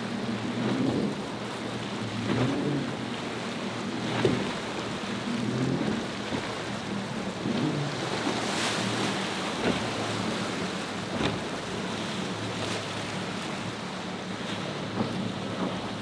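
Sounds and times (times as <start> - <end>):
hull slamming through waves: 0.0 - 16.0
outboard engine running: 0.0 - 16.0
surf and choppy water: 0.0 - 16.0.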